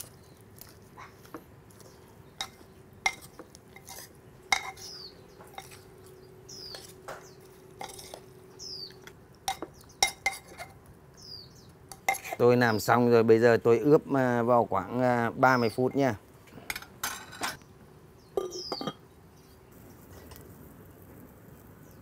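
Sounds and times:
metal spoon stirring meat: 0.0 - 10.8, 11.9 - 12.5
spoon clinking against clay pot: 2.4 - 5.8, 7.8 - 8.2, 8.9 - 10.8, 11.9 - 12.4, 18.4 - 19.0.

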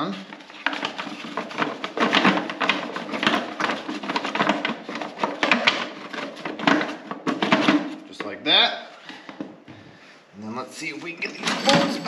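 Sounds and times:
plastic cover knocking and clicking: 0.3 - 8.4.

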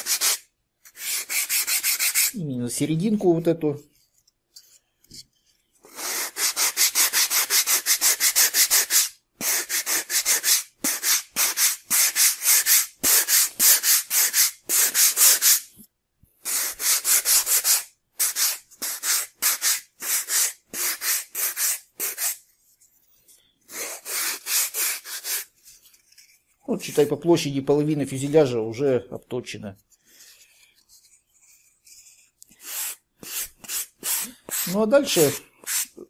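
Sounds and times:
sandpaper rubbing on foam: 0.0 - 2.4, 5.9 - 15.7, 16.4 - 22.4, 23.7 - 27.2, 31.0 - 36.0.

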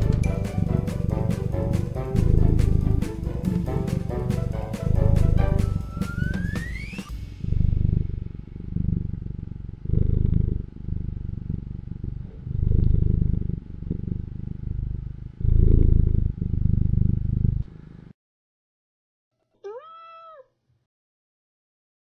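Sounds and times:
cat purring: 0.0 - 6.6, 7.4 - 18.1.

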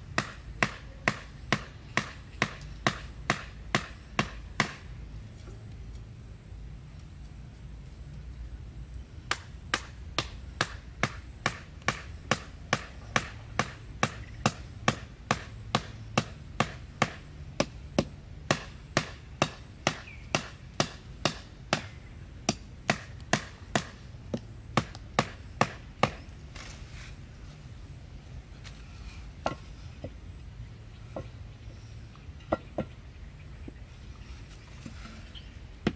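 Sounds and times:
stick pounding wooden stakes: 0.1 - 4.9, 9.3 - 26.7.

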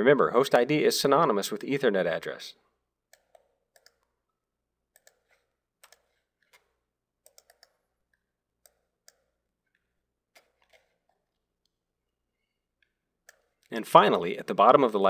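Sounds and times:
computer mouse clicks: 3.1 - 4.2, 4.9 - 11.8, 12.8 - 13.7.

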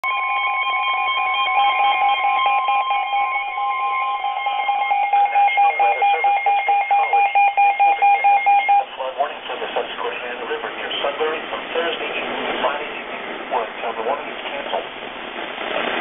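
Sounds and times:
steady electronic tone: 0.0 - 9.0
rapidly pulsing beeping alarm: 0.0 - 9.1.

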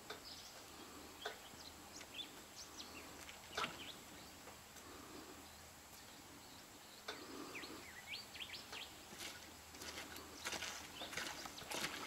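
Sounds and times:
faint splashes in water: 9.1 - 12.0.

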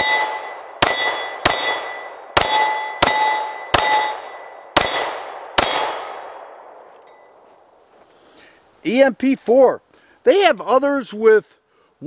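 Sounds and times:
steel target clanging: 0.0 - 6.4
pistol shots: 0.0 - 6.7.

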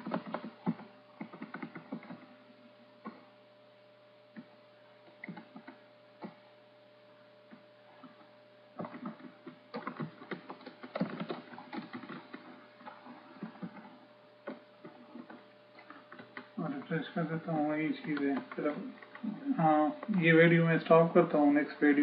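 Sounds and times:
computer keyboard typing: 0.0 - 2.3, 5.2 - 6.4, 8.8 - 20.3
faint steady hum: 0.0 - 22.0.

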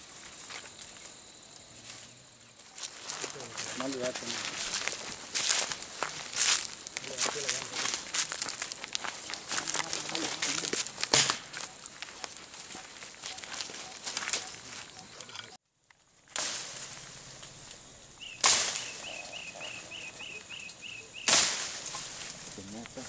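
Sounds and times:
footsteps in undergrowth: 0.0 - 23.0
leaves and branches rustling: 0.0 - 23.0
sharp crack: 9.8 - 11.6, 16.3 - 19.1, 21.2 - 23.0
faint high chirp: 11.6 - 15.6, 18.2 - 21.3.

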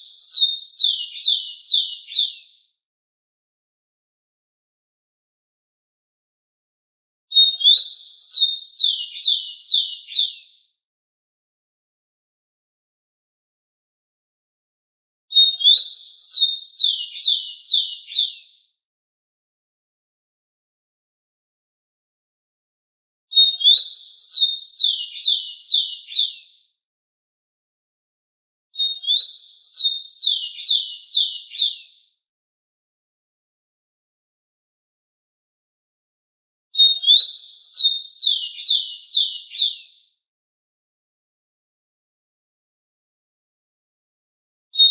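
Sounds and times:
sparrow singing: 0.0 - 2.6, 7.3 - 10.6, 15.3 - 18.6, 23.3 - 26.6, 28.8 - 32.0, 36.8 - 40.0.

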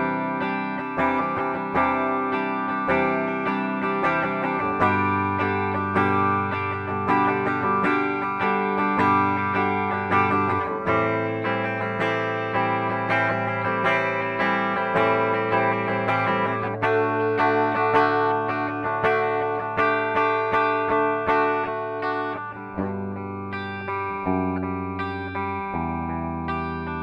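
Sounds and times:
clean electric guitar chords: 0.0 - 27.0.

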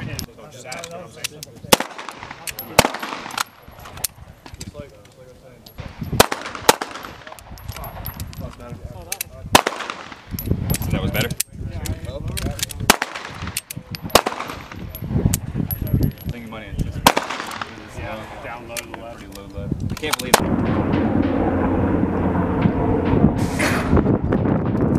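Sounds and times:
pistol shots with echo: 1.7 - 3.6, 5.8 - 7.6, 9.6 - 10.3, 12.9 - 15.0, 17.0 - 17.9.

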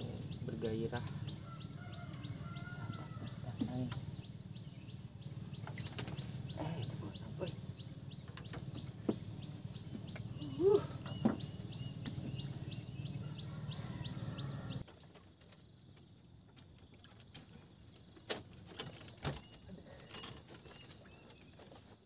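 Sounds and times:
low steady hum: 0.0 - 14.8
small bird chirping: 0.0 - 14.8.

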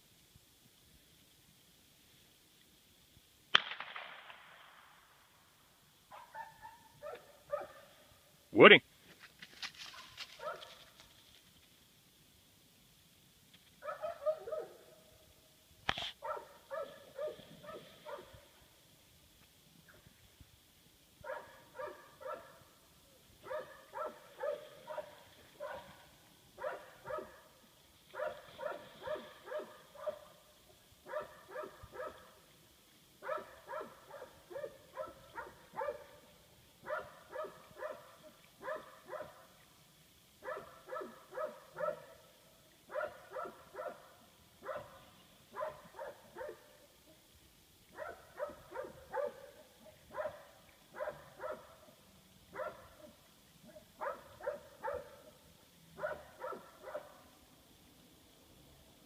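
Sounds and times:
dog barking: 6.1 - 8.0, 9.9 - 10.9, 13.8 - 15.0, 16.2 - 18.4, 21.2 - 22.7, 23.4 - 26.0, 26.6 - 30.4, 31.0 - 32.4, 33.2 - 39.5, 40.4 - 42.3, 42.9 - 46.8, 47.9 - 55.4, 56.0 - 57.3.

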